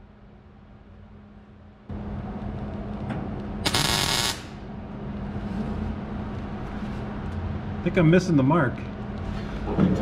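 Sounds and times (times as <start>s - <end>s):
tack weld burst: 3.6s - 4.6s.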